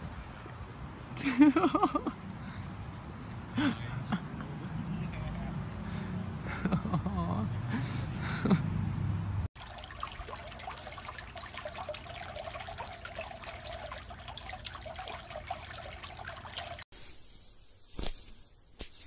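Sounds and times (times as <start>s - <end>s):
pool water trickling and splashing: 0.0s - 2.3s, 9.6s - 16.9s.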